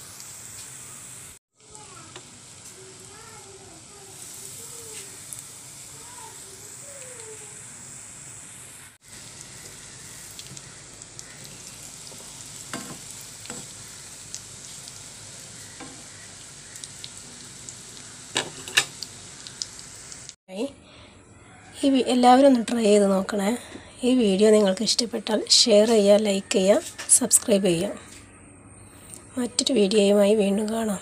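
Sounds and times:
cutlets sizzling in oil: 0.0 - 20.4.

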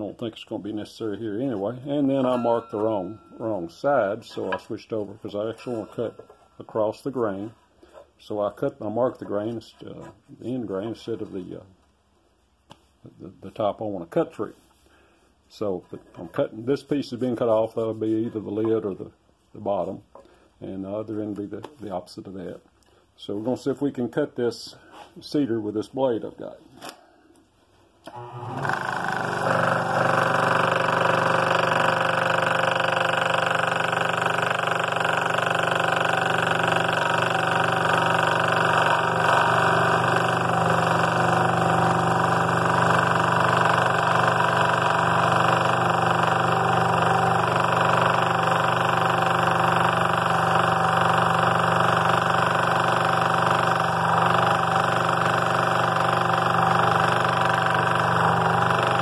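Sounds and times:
scroll saw cutting wood: 28.1 - 59.0.

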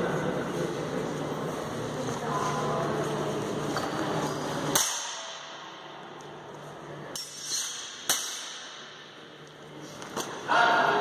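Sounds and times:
steel swords clashing: 7.1 - 8.9.

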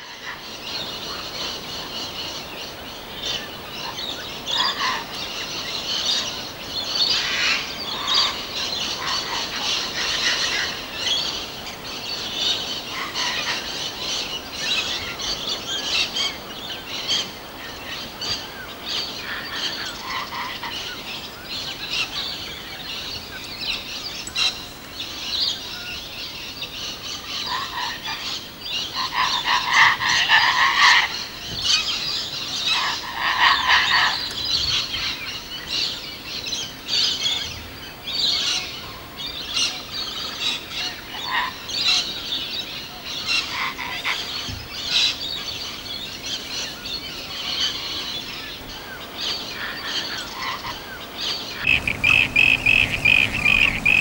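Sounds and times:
birds calling: 0.0 - 39.5, 48.5 - 54.0
frogs calling: 49.6 - 54.0.

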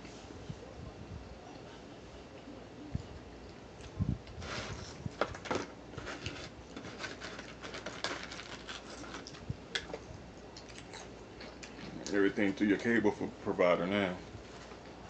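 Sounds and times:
small clicks and crackles: 3.4 - 12.2
person chewing and smacking food: 6.0 - 12.2.

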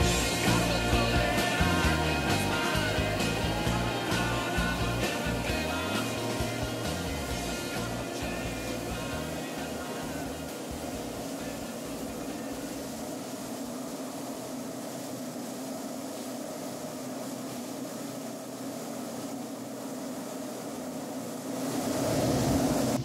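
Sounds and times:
motor humming: 0.0 - 15.0.

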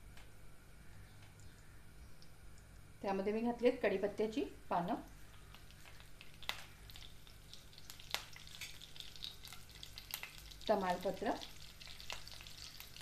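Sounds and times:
leaves sizzling in hot fat: 4.7 - 13.0
sharp crackling pops: 5.2 - 13.0.

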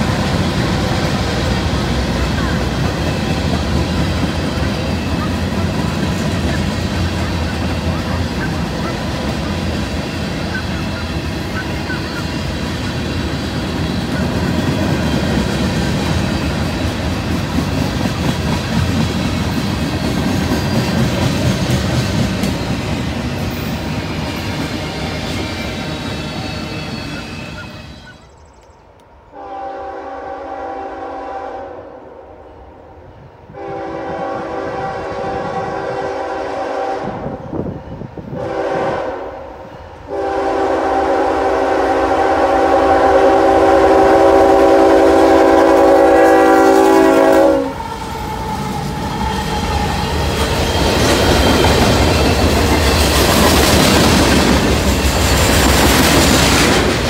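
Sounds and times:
train wheels clicking over rail joints: 0.0 - 27.4, 47.8 - 57.0
locomotive air horn blasts: 29.3 - 32.1, 33.5 - 37.4, 38.4 - 39.5, 40.1 - 47.8.

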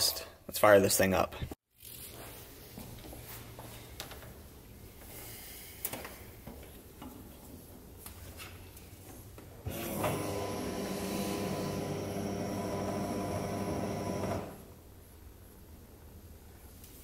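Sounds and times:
electric fuel pump humming: 9.7 - 14.7.

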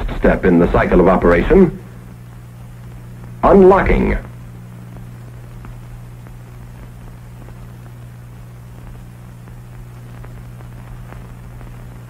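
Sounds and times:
faint crackles: 0.0 - 12.0
film soundtrack hiss and hum: 0.0 - 12.0.

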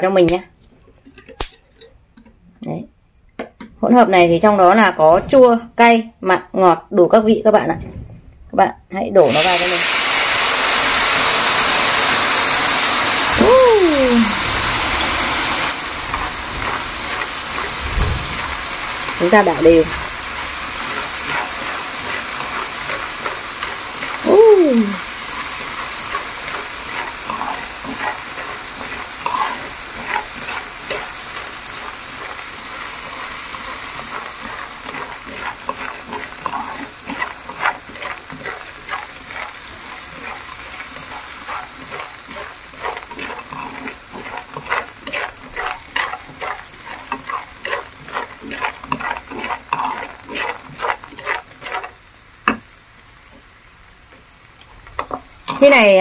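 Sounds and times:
peanuts sizzling in a pan: 8.5 - 56.0.

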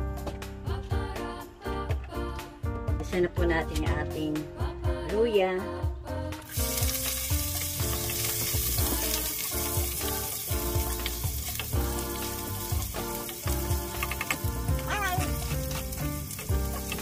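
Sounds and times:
ginger sizzling in hot oil: 6.5 - 17.0.

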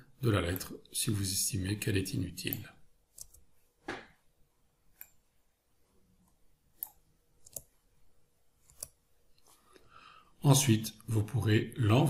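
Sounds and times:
computer mouse and keyboard clicks: 2.5 - 3.5, 6.2 - 7.8, 8.6 - 9.5.

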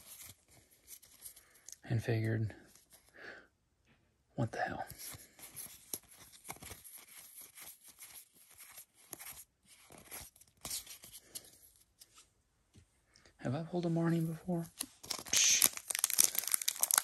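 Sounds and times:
trading cards rustling and clicking: 0.0 - 1.8, 4.9 - 12.2, 14.7 - 17.0.

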